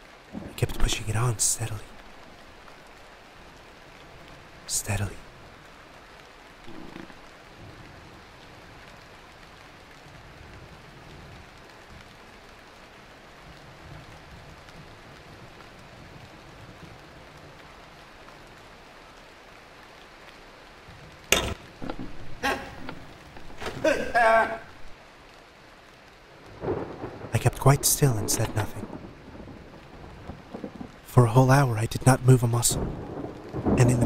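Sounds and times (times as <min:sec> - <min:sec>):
steady rain: 0:00.0 - 0:34.0.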